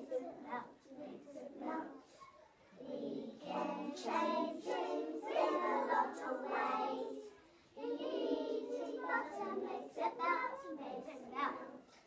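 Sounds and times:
young children singing: 0:00.0 - 0:12.0.

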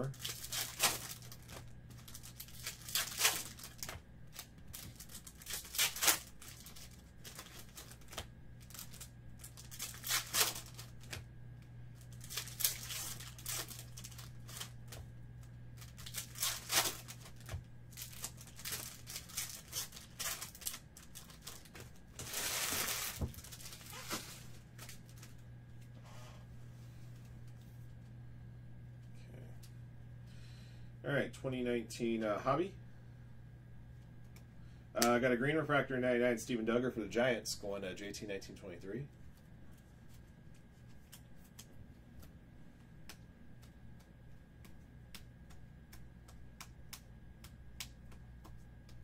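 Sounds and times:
foil wrappers tearing and crinkling: 0:00.0 - 0:11.2, 0:12.0 - 0:15.0, 0:15.8 - 0:25.4.

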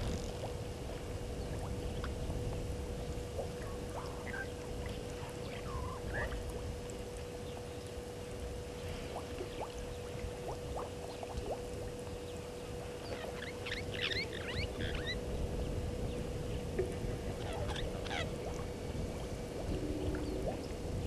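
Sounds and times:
faint hum: 0:00.0 - 0:21.0
small birds chirping: 0:03.6 - 0:06.4, 0:13.0 - 0:15.2.

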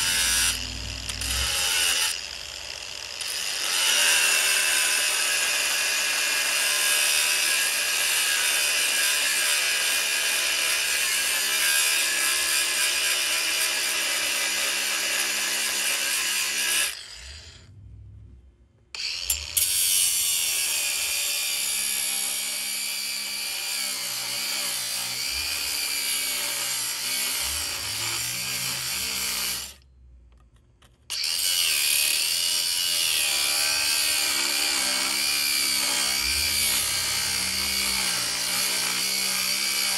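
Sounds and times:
electric power tool running: 0:00.0 - 0:17.6, 0:31.1 - 0:39.9.

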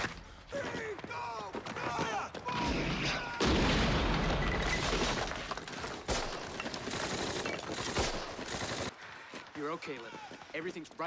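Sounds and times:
gunfire and debris rumble: 0:02.5 - 0:09.0.

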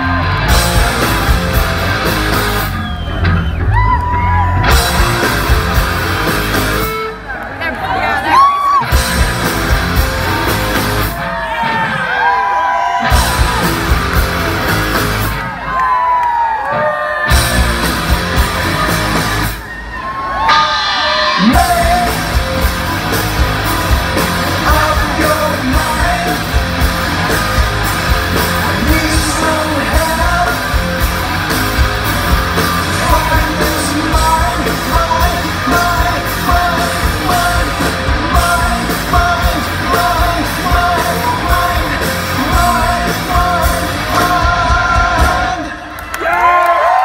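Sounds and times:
bass guitar: 0:00.0 - 0:07.6, 0:08.4 - 0:12.0, 0:13.0 - 0:15.6, 0:17.3 - 0:19.7, 0:20.5 - 0:45.8
distorted electric guitars: 0:00.0 - 0:12.4, 0:13.0 - 0:15.8, 0:16.8 - 0:19.7, 0:20.4 - 0:46.0
drum beat: 0:00.4 - 0:02.7, 0:04.6 - 0:07.0, 0:08.8 - 0:11.0, 0:13.1 - 0:15.4, 0:21.3 - 0:45.7
man singing lead vocal: 0:20.5 - 0:22.7, 0:24.1 - 0:27.3, 0:28.3 - 0:31.1, 0:32.6 - 0:45.9.

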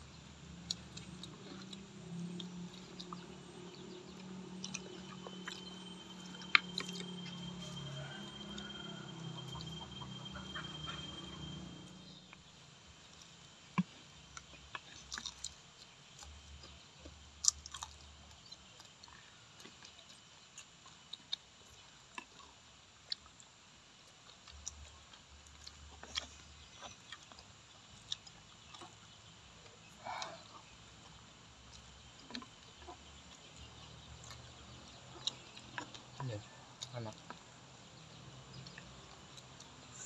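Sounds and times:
low hum: 0:00.0 - 0:12.8
chewing and biting: 0:00.0 - 0:40.0.

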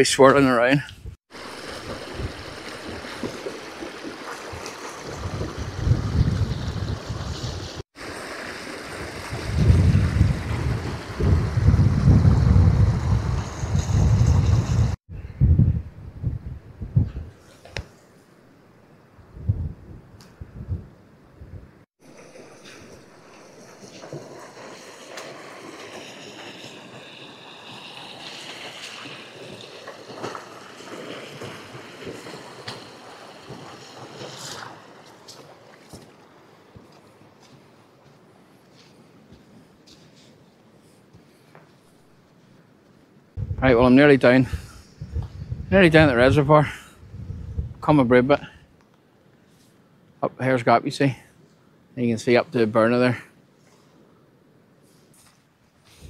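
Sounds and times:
stream splashing over rocks: 0:01.3 - 0:14.9, 0:22.0 - 0:36.8
wind buffeting microphone: 0:01.8 - 0:07.8, 0:09.0 - 0:17.4, 0:19.3 - 0:21.8, 0:43.4 - 0:48.1
footsteps on gravel: 0:32.1 - 0:40.2.

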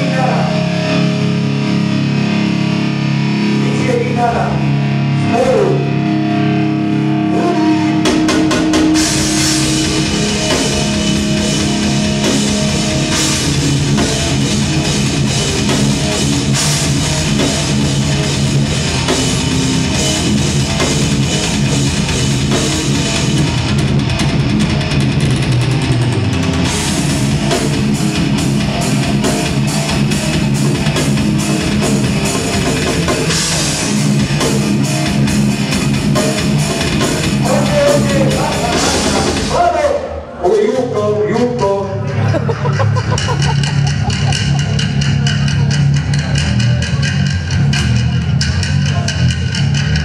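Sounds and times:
bass guitar: 0:00.0 - 0:50.0
electric guitar chords: 0:00.0 - 0:50.0
fast drumming: 0:08.0 - 0:40.0, 0:42.8 - 0:50.0.

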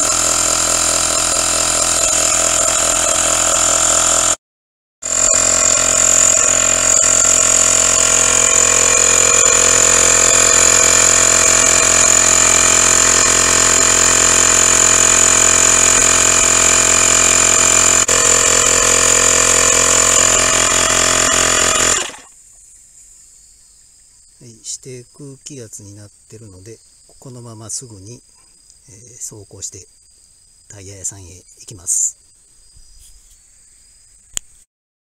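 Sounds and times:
electric compressor whining: 0:00.0 - 0:04.4, 0:05.0 - 0:22.3.

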